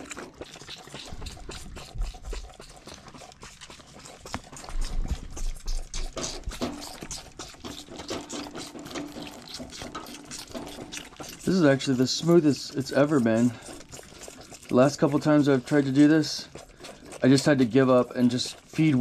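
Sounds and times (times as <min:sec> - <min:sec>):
lambs sucking milk from bottles: 0:00.0 - 0:19.0.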